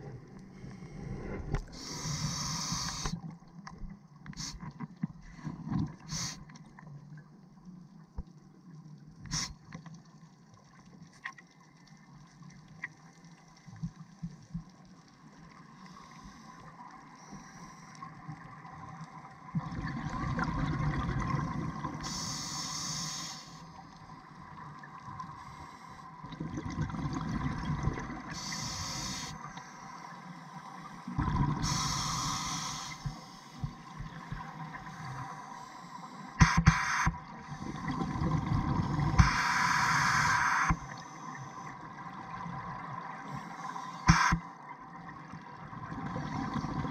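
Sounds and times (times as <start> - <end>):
high hiss: 1.7 - 3.2, 6.1 - 6.4, 22.0 - 23.6, 28.4 - 30.1, 31.6 - 33.9, 39.2 - 41.7
bubbling exhaled air underwater: 19.6 - 22.3, 26.2 - 29.3, 31.1 - 34.5, 36.5 - 41.0.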